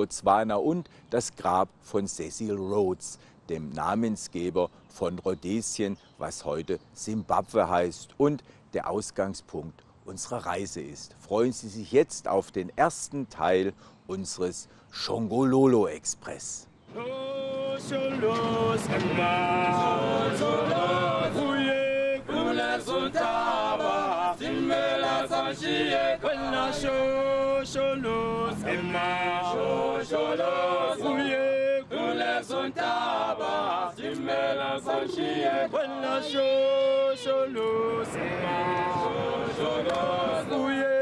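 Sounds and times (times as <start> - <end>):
male choir singing in harmony: 16.9 - 41.0.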